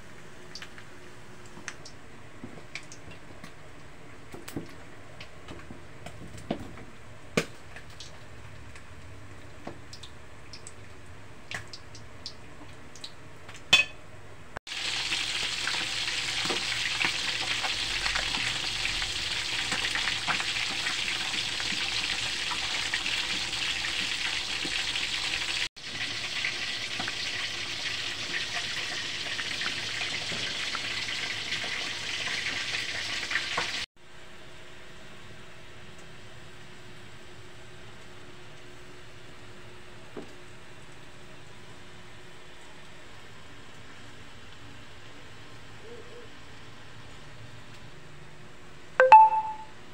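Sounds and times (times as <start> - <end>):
fish sizzling in hot oil: 14.7 - 33.9.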